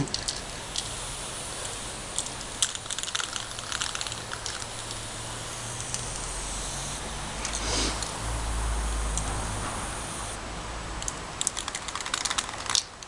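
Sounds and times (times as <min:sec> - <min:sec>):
chalk scraping on asphalt: 0:07.5 - 0:08.3.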